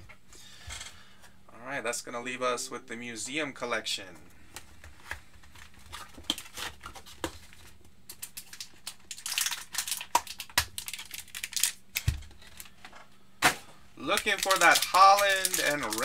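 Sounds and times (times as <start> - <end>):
cellophane crinkling: 4.9 - 12.8, 14.0 - 16.0.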